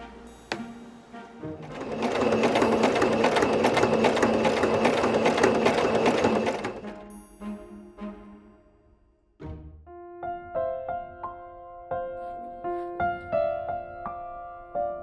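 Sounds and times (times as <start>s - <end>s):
sewing machine stitching: 1.6s - 7.1s.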